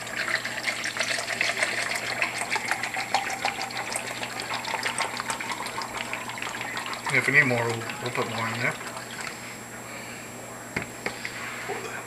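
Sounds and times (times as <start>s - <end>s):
liquid pouring into plastic cup: 0.0s - 9.4s.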